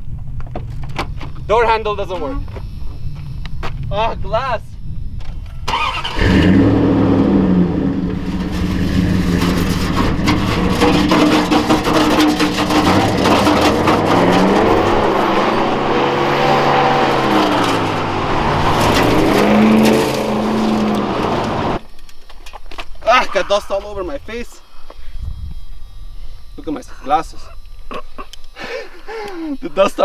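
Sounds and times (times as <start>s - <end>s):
pickup engine revving loudly: 5.7s - 21.8s.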